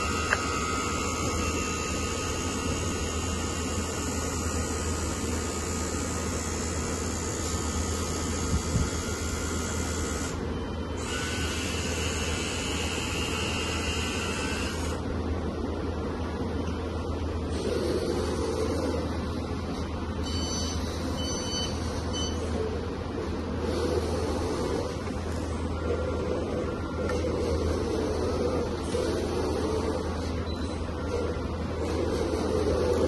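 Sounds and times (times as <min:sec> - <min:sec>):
hydraulic pump electric whine: 0:00.0 - 0:15.2.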